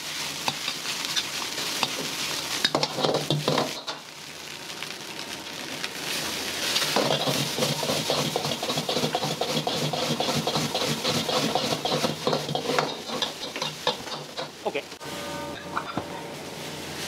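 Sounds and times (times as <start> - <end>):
metal ladle scraping a wok: 6.8 - 14.5.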